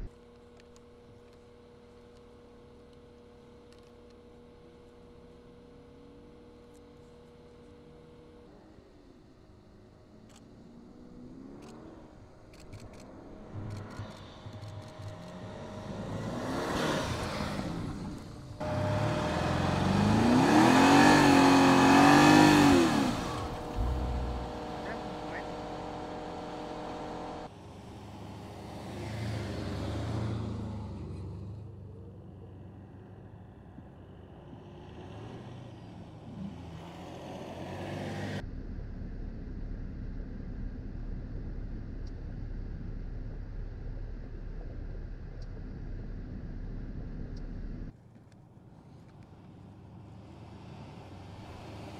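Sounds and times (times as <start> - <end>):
vehicle engine revving: 10.6 - 31.8, 34.4 - 47.9
suv low rumble: 10.7 - 28.6, 38.0 - 50.0.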